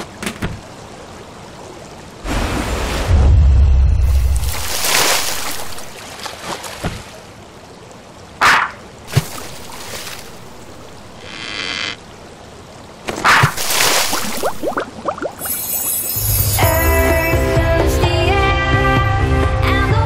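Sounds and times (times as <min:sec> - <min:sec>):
quick rising chirps: 0:15.2 - 0:17.0
magic whoosh: 0:15.4 - 0:16.7
short shimmering tone: 0:15.4 - 0:17.0.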